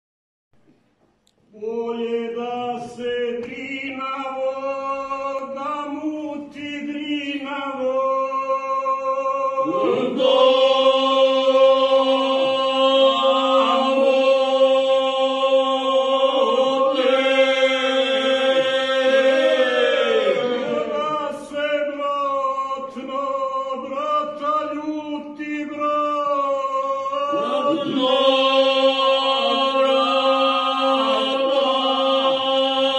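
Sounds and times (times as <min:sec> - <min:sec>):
men singing a cappella harmony: 0:09.1 - 0:32.9.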